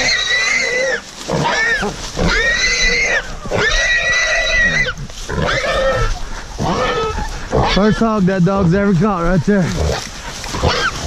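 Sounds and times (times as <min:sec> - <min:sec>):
hog squealing: 0:00.0 - 0:08.2, 0:09.7 - 0:11.0.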